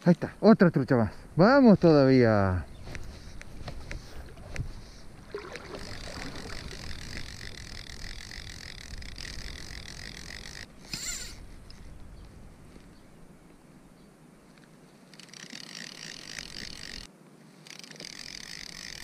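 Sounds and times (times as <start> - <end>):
fly reel clicking and buzzing: 2.9 - 11.9, 15.1 - 19.0.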